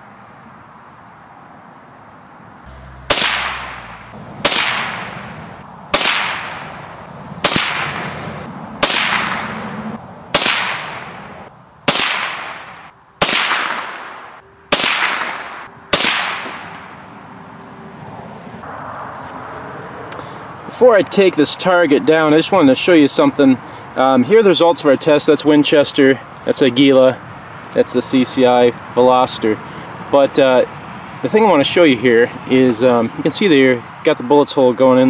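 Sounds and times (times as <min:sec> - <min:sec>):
rifle shots: 0:02.7 - 0:11.3, 0:11.9 - 0:17.0.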